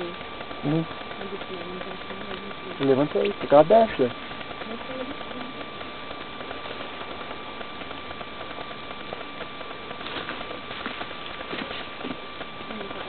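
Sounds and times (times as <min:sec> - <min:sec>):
faint high hum: 0:00.0 - 0:13.0.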